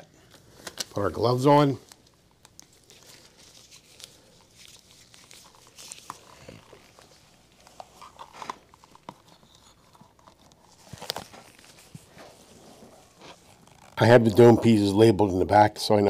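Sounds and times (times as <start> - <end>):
straps rubbing: 2.7 - 14.6.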